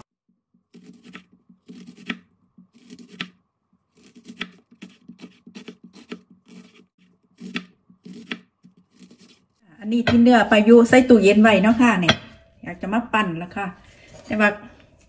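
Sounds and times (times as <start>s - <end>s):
knife slicing onion on board: 0.6s - 9.6s.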